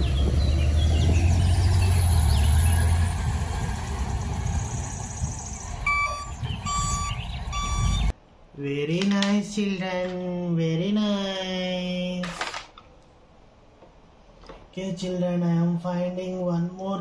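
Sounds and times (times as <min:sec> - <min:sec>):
crane engine rumbling: 0:00.0 - 0:08.1
reversing alarm beeps: 0:05.8 - 0:08.1.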